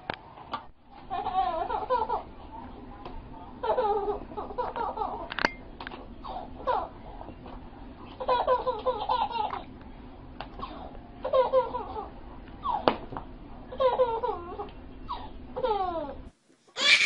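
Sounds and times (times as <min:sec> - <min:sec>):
baby giggling: 0:01.0 - 0:02.3, 0:03.6 - 0:05.3, 0:06.2 - 0:07.0, 0:08.2 - 0:09.7, 0:10.6 - 0:12.9, 0:13.8 - 0:16.2.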